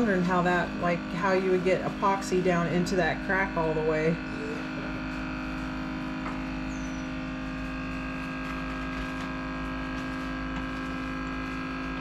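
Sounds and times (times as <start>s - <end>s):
electric hum with fixed tones: 0.0s - 12.0s.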